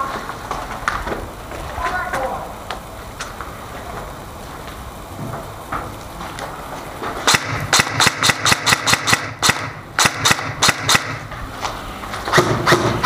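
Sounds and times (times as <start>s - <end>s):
airsoft gun shots: 7.2s - 11.3s, 12.3s - 13.0s.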